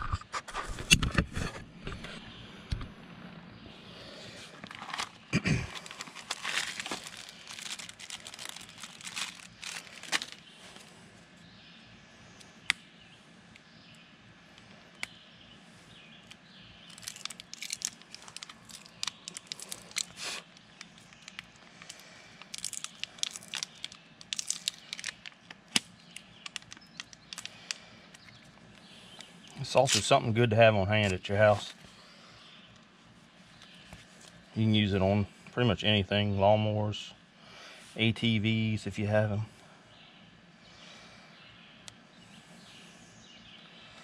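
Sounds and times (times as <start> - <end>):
packaging crinkling and tearing: 4.6 - 10.5, 16.9 - 27.8.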